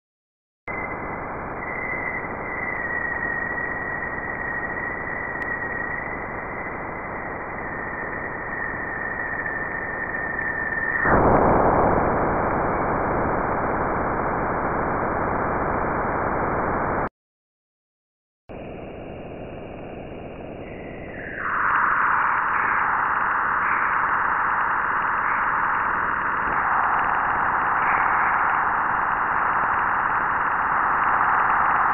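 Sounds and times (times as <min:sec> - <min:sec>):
hiss with high tone: 0:20.5 - 0:31.9
loud rush of noise: 0:20.6 - 0:31.9.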